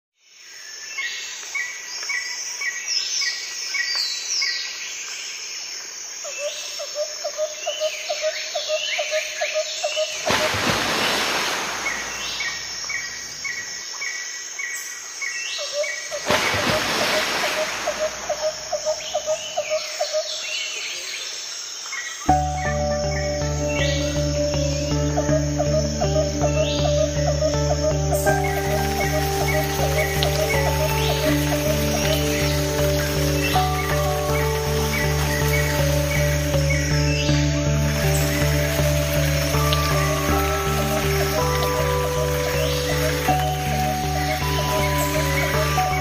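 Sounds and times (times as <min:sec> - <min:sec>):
birds chirping: 0:06.3 - 0:46.0
whistled bird calls: 0:15.6 - 0:21.1, 0:25.2 - 0:46.0
pulsed bird call: 0:15.7 - 0:20.3, 0:22.3 - 0:46.0.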